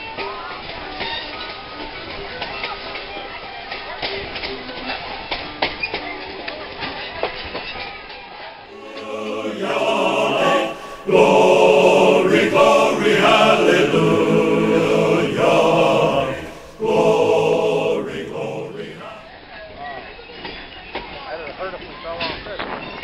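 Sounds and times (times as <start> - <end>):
choir singing: 8.7 - 19.3.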